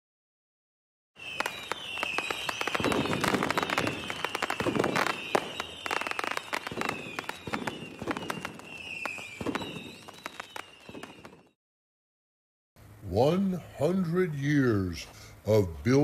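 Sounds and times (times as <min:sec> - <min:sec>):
fireworks crackling bangs: 0:01.2 - 0:11.6
fireworks whistles: 0:01.2 - 0:11.6.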